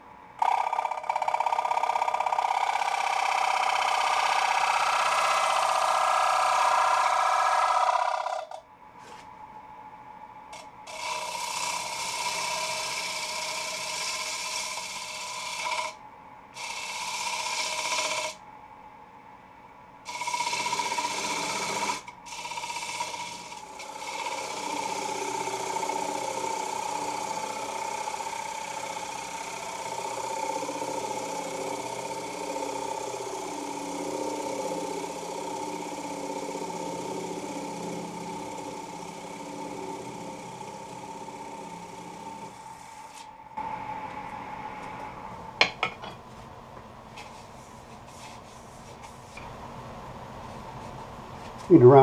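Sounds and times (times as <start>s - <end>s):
gouge cutting wood on a lathe: 0.4s - 8.6s, 10.9s - 16.0s, 16.6s - 18.4s, 20.1s - 43.2s.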